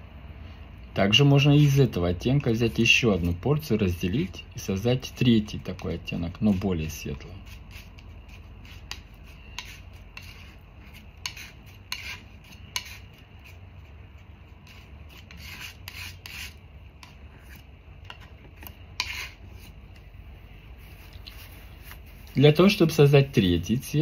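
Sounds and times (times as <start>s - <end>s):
paint scraping on palette: 5.7s - 20.1s, 20.7s - 23.7s.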